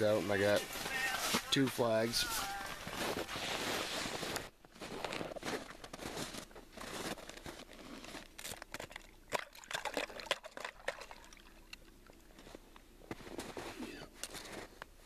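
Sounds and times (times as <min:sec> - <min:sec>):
snow and slush crunching: 0:00.0 - 0:11.6, 0:12.2 - 0:14.8
water trickling: 0:09.0 - 0:12.4.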